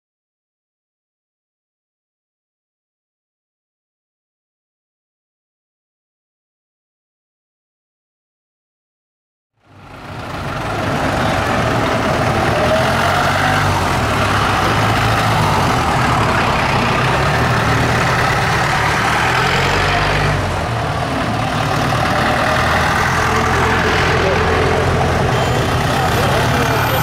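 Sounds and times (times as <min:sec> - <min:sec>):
diesel engines idling: 0:09.6 - 0:27.0.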